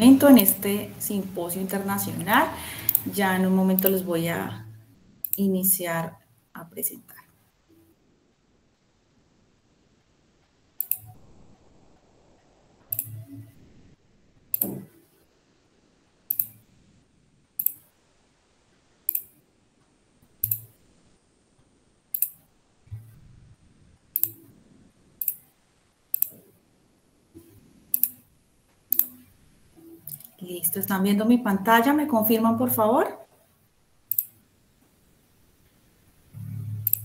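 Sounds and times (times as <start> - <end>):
computer mouse clicks: 2.2 - 4.1, 5.2 - 5.8, 10.8 - 11.3, 12.9 - 13.4, 14.5 - 15.0, 16.3 - 16.6, 17.6 - 17.9, 19.1 - 19.4, 20.4 - 20.8, 22.1 - 22.4, 24.2 - 24.5, 25.2 - 25.5, 26.1 - 26.5, 27.4 - 28.2, 28.9 - 29.3, 30.0 - 31.0, 34.1 - 34.4, 36.4 - 37.0.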